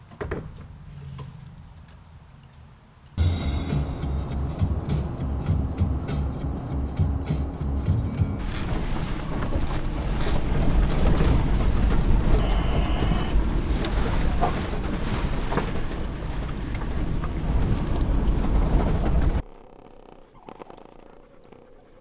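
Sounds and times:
knocks and rattles from bumps: 0.0 - 0.8, 8.4 - 19.4
tyres rumbling on gravel: 8.4 - 19.6.

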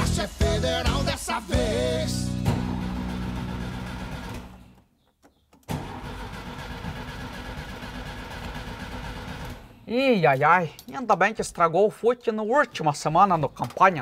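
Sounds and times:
background music: 0.0 - 4.6
car engine cranking: 2.4 - 4.9, 5.6 - 9.7.

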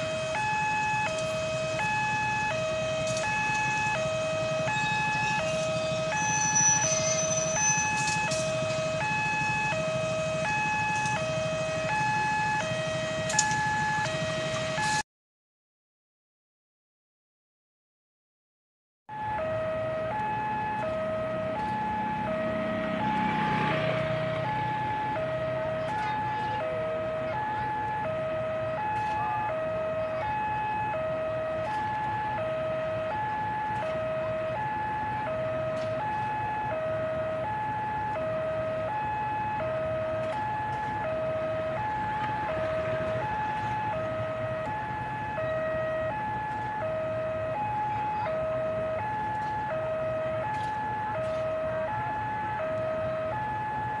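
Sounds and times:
level-crossing alarm two tones: 0.0 - 15.0, 19.1 - 54.0
passing engine: 19.4 - 54.0.

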